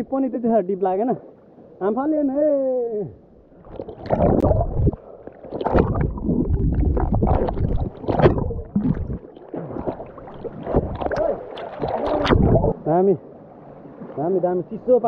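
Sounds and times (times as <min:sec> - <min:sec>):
underwater water churning and bubbling: 0:03.2 - 0:14.8.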